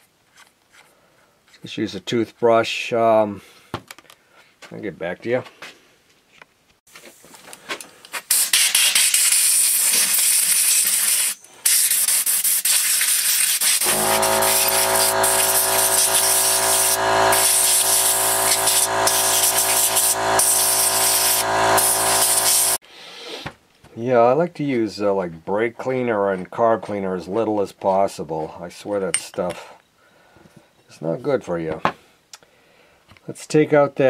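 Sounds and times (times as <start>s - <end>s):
air blow gun hissing: 13.4s - 22.8s
machine hum: 13.8s - 22.8s.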